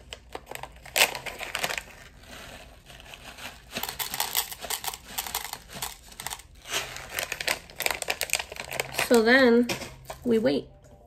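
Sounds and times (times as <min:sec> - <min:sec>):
plastic bag crinkling: 0:00.0 - 0:09.4
beads pattering and clicking: 0:03.4 - 0:09.2.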